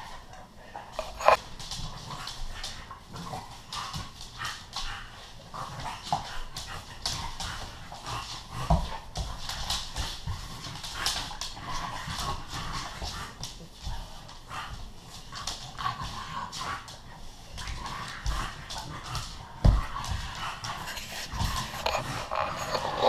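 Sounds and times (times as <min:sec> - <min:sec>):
dog paws scuffling on laminate floor: 0:00.0 - 0:23.0
dogs growling while play-fighting: 0:00.1 - 0:23.0.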